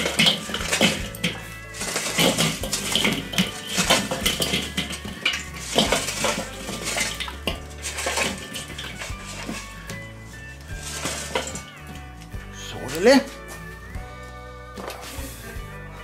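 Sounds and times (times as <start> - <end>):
charcoal clattering onto grill grate: 0.0 - 12.1, 14.8 - 15.4
coals rattling in metal chimney: 0.0 - 13.9.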